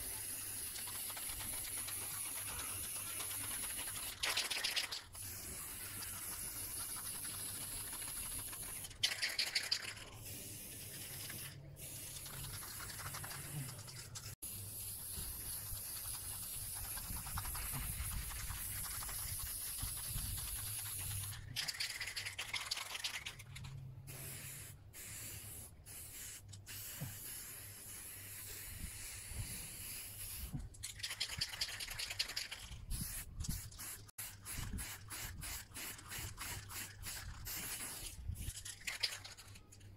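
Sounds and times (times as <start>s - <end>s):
spray-paint can hissing: 0.0s - 39.6s.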